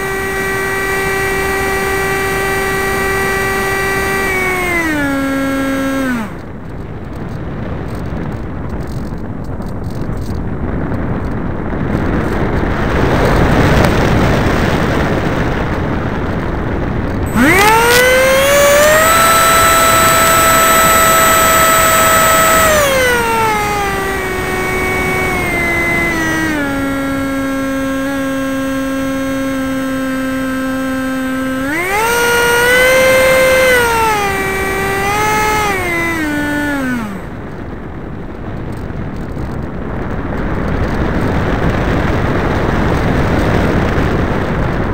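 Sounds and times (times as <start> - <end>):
electric motor rising whine: 0.0 - 7.3, 17.1 - 37.6
wind rushing over microphone: 0.0 - 44.9.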